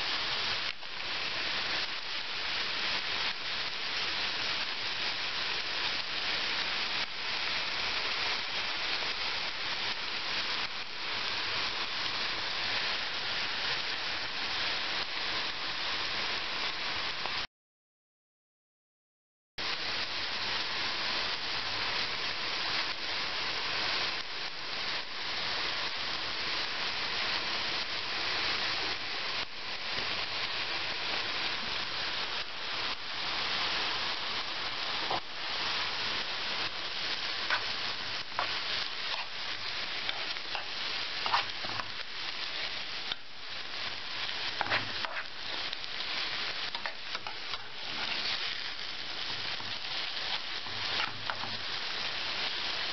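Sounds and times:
onions sizzling in oil: 0.0 - 17.4, 19.6 - 52.9
spoon stirring in pan: 37.5 - 43.3, 44.2 - 51.8.

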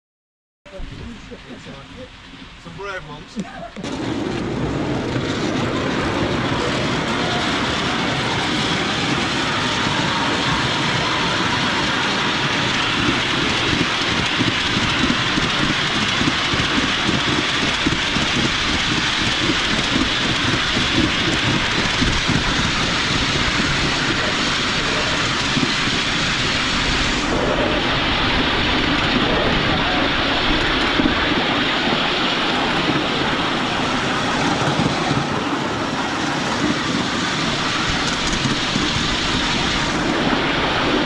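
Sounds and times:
miniature train rumbling: 0.7 - 41.0.

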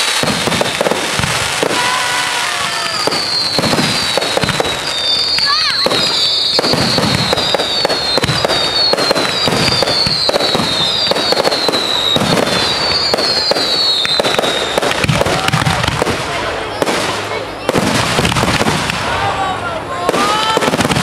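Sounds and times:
fireworks bangs and crackling: 0.0 - 21.0
high falling whistles: 1.9 - 15.0.

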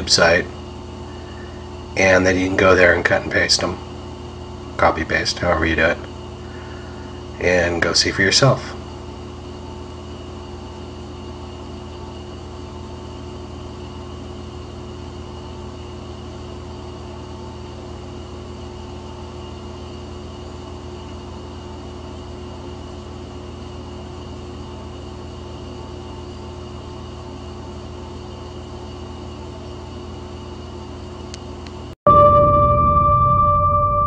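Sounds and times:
low machine hum: 0.0 - 34.0
faint held tones: 32.1 - 34.0.

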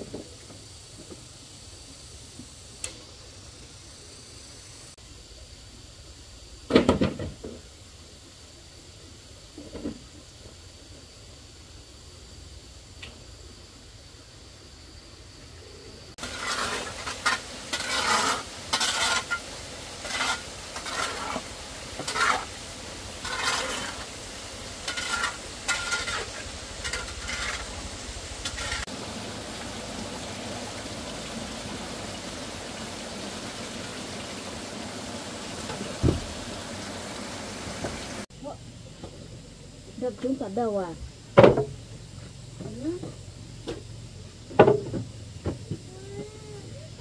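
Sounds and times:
steady hiss: 0.0 - 47.0
sharp scraping strokes: 16.2 - 22.6, 23.2 - 24.2, 24.8 - 27.8, 28.4 - 28.9.

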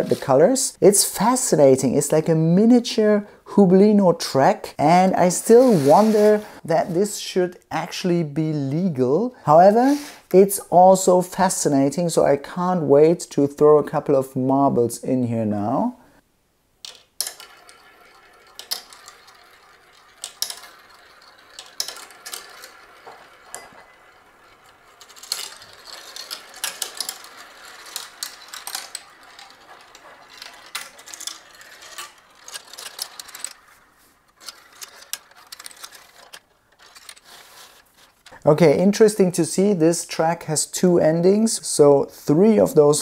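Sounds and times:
marbles rattling down plastic tracks: 16.8 - 38.3.

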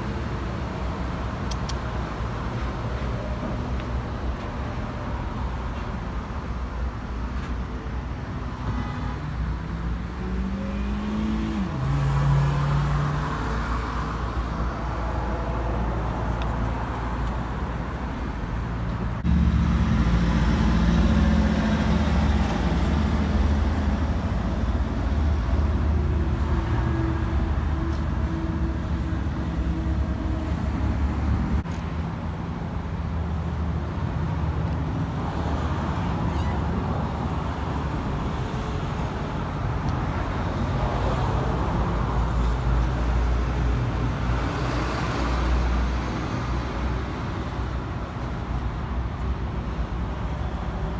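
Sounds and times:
road traffic noise: 0.0 - 50.9
engine low hum: 9.4 - 33.9.

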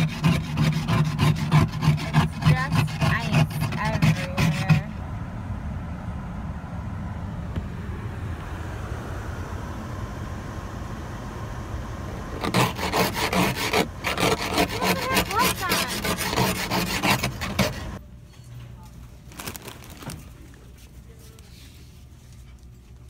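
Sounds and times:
ice scraper scraping windshield: 0.0 - 4.9, 12.4 - 18.0
low rumble in car cabin: 2.0 - 18.0.

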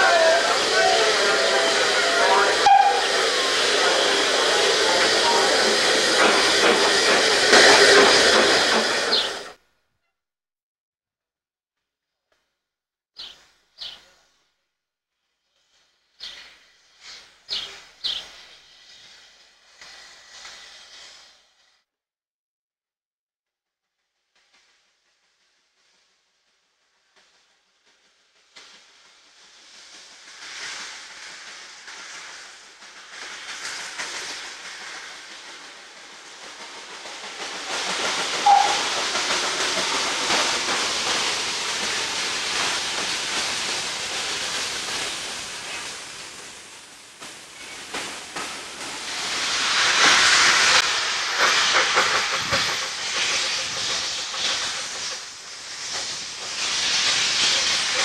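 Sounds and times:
steam whistle: 0.0 - 3.7, 38.4 - 38.9
steam blowing from drain cocks: 0.0 - 9.5, 15.6 - 21.8, 24.4 - 58.0
steam hissing: 0.0 - 9.6, 15.5 - 21.8, 24.3 - 58.0.

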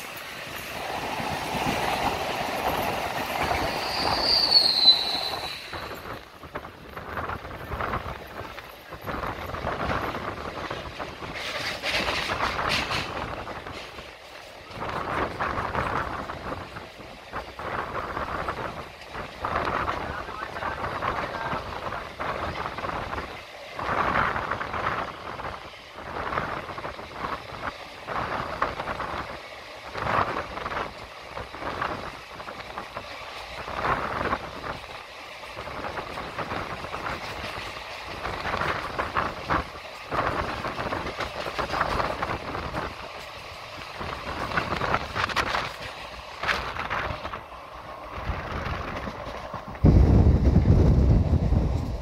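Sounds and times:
train clatter and rattling: 0.0 - 52.0
train wheels rolling on rails: 0.0 - 52.0.

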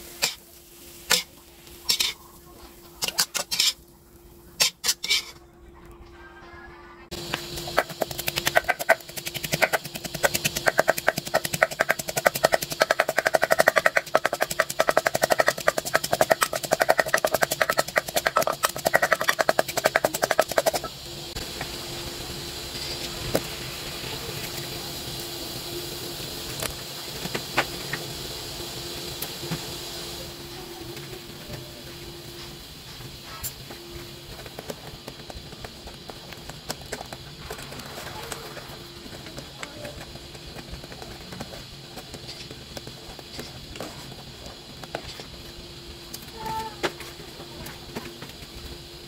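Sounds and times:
pestle pounding in mortar: 7.6 - 20.8.

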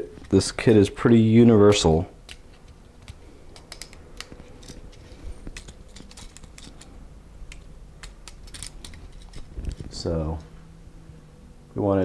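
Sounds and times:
metal and plastic parts clicking: 2.2 - 10.0.

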